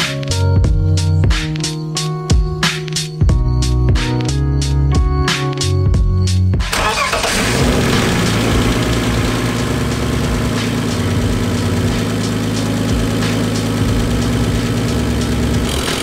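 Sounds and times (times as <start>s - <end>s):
car engine idling: 6.7s - 16.0s.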